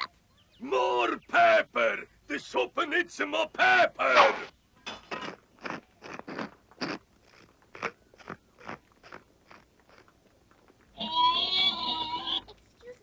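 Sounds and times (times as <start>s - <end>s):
pepper mill grinding: 5.2s - 10.1s.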